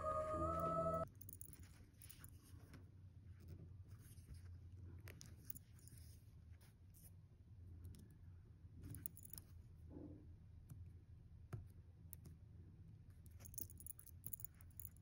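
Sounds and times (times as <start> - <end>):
faint clicks and scrapes on locket: 1.0 - 7.2, 8.8 - 9.8, 13.1 - 15.0.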